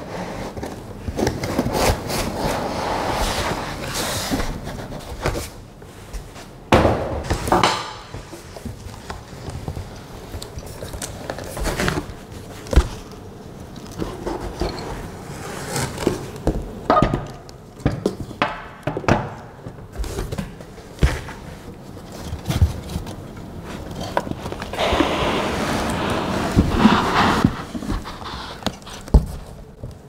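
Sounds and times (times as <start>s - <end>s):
cardboard box rustling and scraping: 22.2s - 29.5s.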